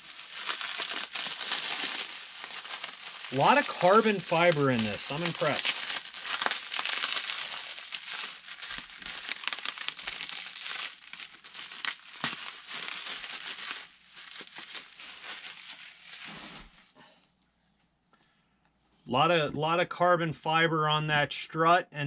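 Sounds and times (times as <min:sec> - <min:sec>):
bubble wrap crinkling: 0:00.0 - 0:17.0.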